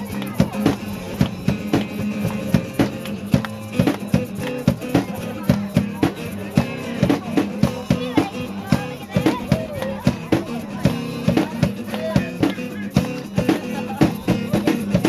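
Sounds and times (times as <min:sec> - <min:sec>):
drum kit beat: 0:00.0 - 0:15.0.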